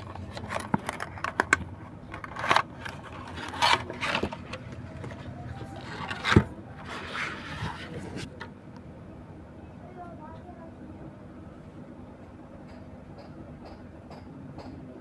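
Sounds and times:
cardboard insert rustling: 0:00.0 - 0:08.3.

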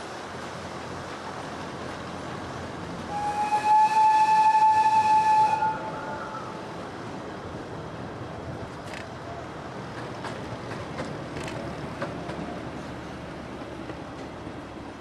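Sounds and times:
steady background noise: 0:00.0 - 0:15.0
train whistle: 0:03.1 - 0:06.5.

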